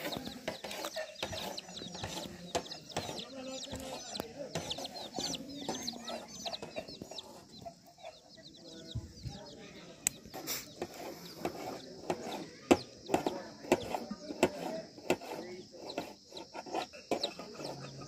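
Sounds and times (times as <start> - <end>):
chicks peeping: 0.0 - 18.0
knife cutting on metal tray: 10.4 - 17.8.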